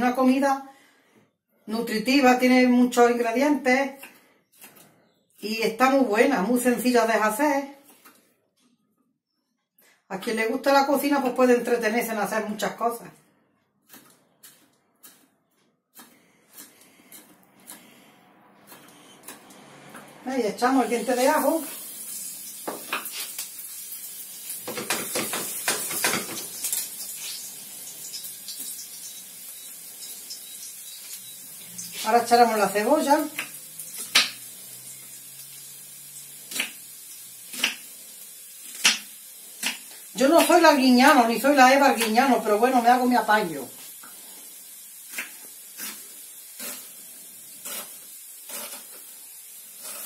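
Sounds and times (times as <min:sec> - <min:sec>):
knife cutting onion on board: 0:13.8 - 0:20.1, 0:36.5 - 0:37.9, 0:38.6 - 0:40.6, 0:45.1 - 0:46.0
garlic sizzling in a frying pan: 0:20.5 - 0:50.0
faint hiss: 0:43.3 - 0:50.0.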